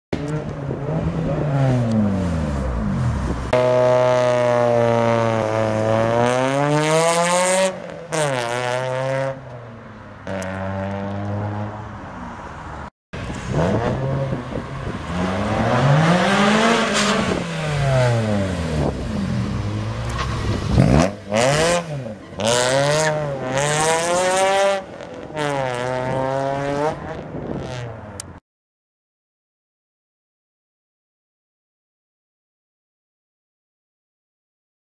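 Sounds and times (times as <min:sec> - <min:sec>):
car engine revving loudly: 0:00.2 - 0:09.4, 0:13.4 - 0:27.9.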